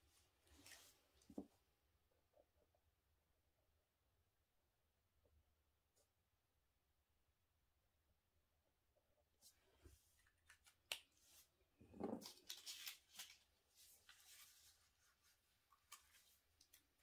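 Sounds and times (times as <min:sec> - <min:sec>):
hands rustling small objects: 0:10.2 - 0:14.9.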